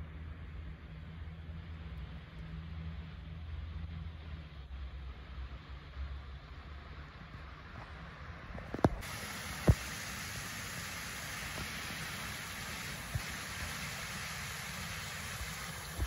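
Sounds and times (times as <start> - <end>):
water rushing through culvert: 8.7 - 16.0.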